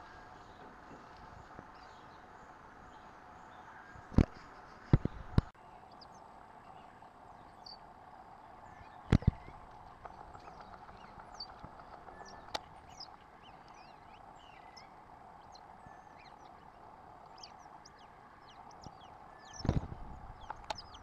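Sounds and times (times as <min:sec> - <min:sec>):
outdoor background hum: 0:00.0 - 0:21.0
faint high chirps: 0:05.6 - 0:21.0.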